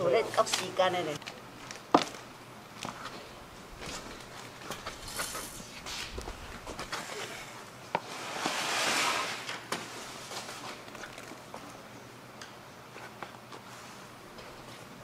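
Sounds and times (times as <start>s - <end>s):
rustling scrape: 3.8s - 10.9s.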